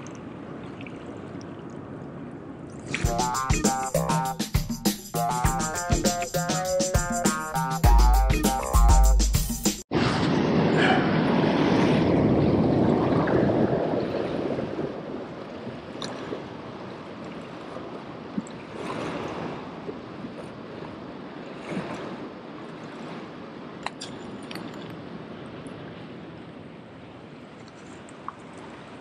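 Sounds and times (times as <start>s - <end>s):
waves splashing against rocks: 9.9s - 26.3s.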